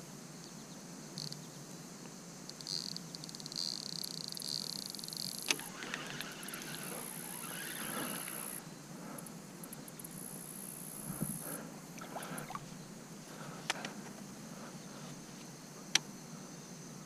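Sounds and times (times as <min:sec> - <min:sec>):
faint outdoor background: 0:00.0 - 0:17.0
fishing rod and reel clicks: 0:02.5 - 0:08.6.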